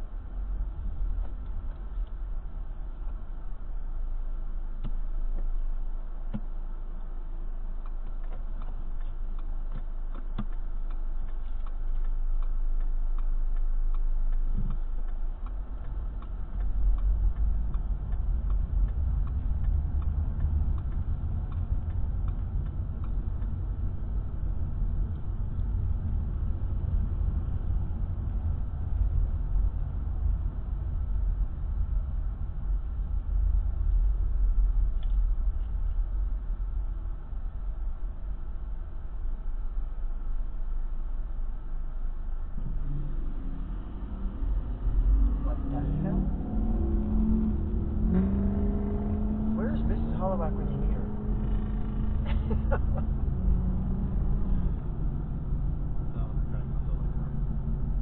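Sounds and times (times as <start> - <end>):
engine and road rumble: 0.0 - 58.0
turn signal ticking: 6.2 - 33.1.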